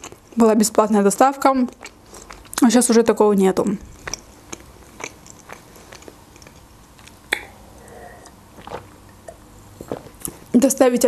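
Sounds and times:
chewing with wet mouth clicks: 0.0 - 0.4, 1.5 - 2.7, 3.9 - 7.5.

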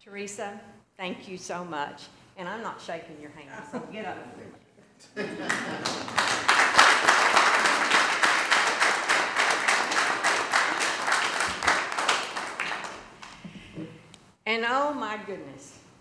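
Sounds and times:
applause: 5.4 - 13.4.

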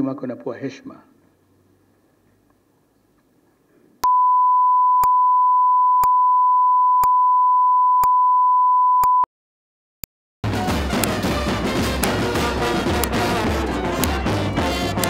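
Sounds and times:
electronic test tone beep: 4.0 - 9.3
sharp clicks: 11.0 - 11.3, 11.9 - 15.0.

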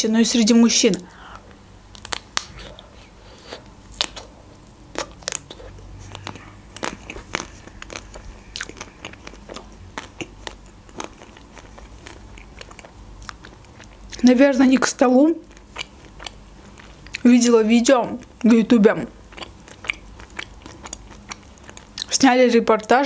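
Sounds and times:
chewing: 1.9 - 14.2, 15.4 - 17.3, 19.3 - 22.1.

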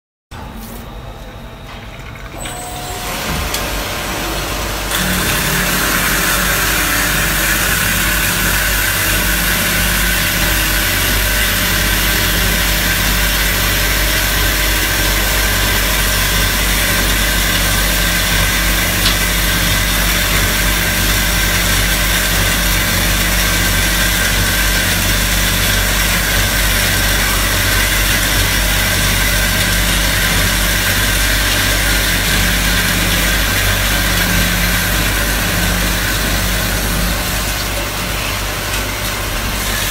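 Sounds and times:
band saw machine hum: 2.3 - 39.9.

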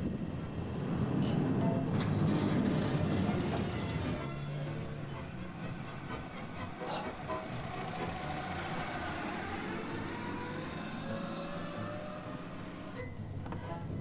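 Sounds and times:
car engine and road noise: 0.0 - 14.0
whine rising and falling in pitch: 7.3 - 13.1.

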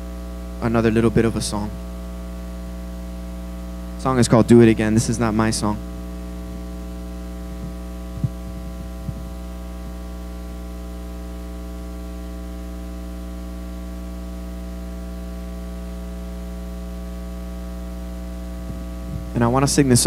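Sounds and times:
electrical mains hum: 0.0 - 20.0
microphone handling thumps: 5.8 - 10.6, 18.0 - 19.8.

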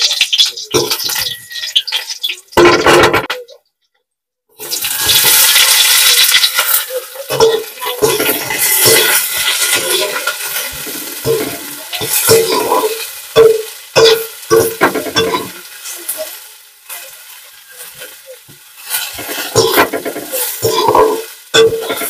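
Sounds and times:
onions sizzling in pan: 0.0 - 2.7, 4.6 - 22.0
spatula scraping pan: 4.6 - 22.0.

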